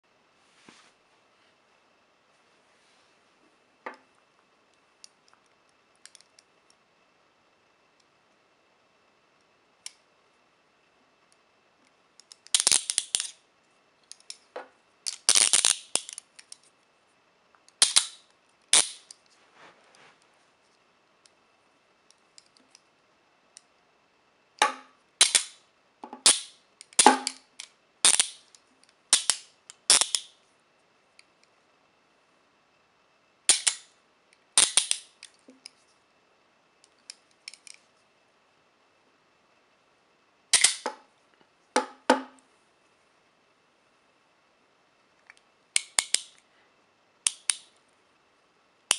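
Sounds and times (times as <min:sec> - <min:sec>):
handcuffs clicking and ratcheting: 0:12.2 - 0:13.4, 0:15.0 - 0:16.6, 0:29.2 - 0:30.3, 0:45.8 - 0:46.4, 0:47.3 - 0:47.7.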